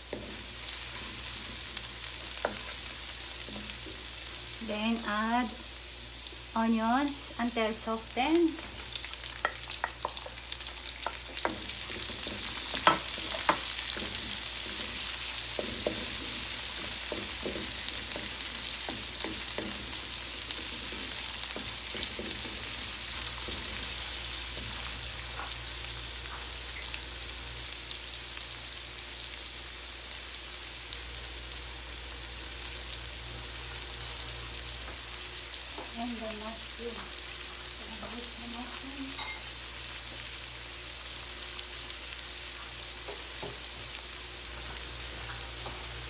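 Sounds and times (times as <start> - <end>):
onions sizzling in hot oil: 0.0 - 46.0
spatula scraping a pan: 0.1 - 4.1, 11.0 - 25.6.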